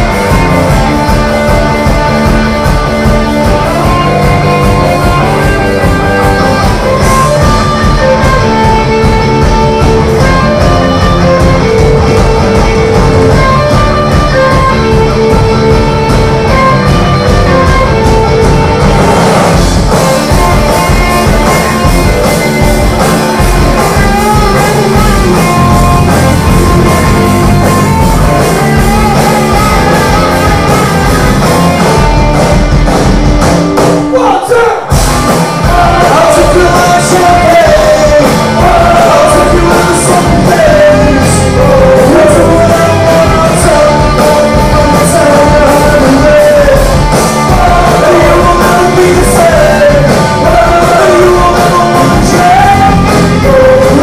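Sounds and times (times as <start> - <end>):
rock band playing: 0.0 - 54.0
man singing: 3.4 - 15.7, 35.6 - 54.0.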